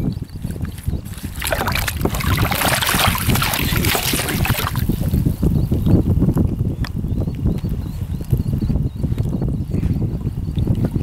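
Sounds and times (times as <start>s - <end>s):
wind rumble on microphone: 0.0s - 11.0s
fish splashing and thrashing: 0.6s - 5.3s.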